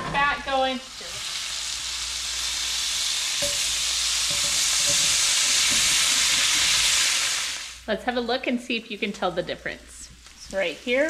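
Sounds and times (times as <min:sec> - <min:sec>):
potatoes sizzling in a skillet: 0:00.2 - 0:07.9, 0:10.2 - 0:11.0
potato knocking on pan: 0:03.4 - 0:06.8.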